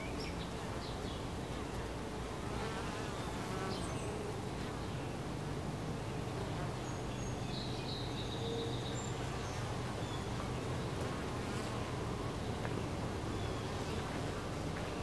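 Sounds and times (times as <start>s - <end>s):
bees buzzing: 9.2s - 15.0s.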